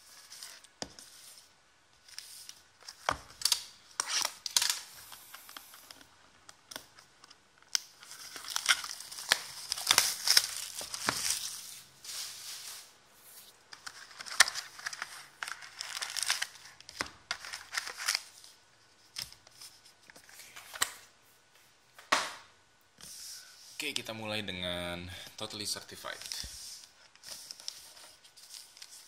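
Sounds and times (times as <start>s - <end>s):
plastic shrink wrap tearing: 3.4s - 5.0s, 7.7s - 12.9s, 13.8s - 18.4s
foil packs crinkling: 7.8s - 12.9s, 13.8s - 18.6s.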